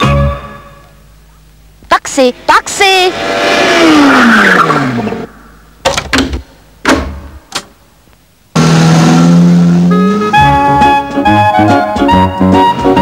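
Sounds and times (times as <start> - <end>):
music: 0.0 - 1.2, 9.8 - 13.0.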